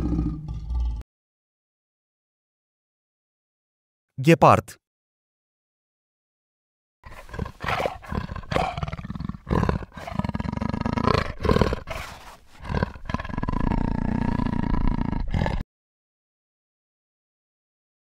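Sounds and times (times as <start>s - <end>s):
cheetah growling calls: 7.1s - 15.6s.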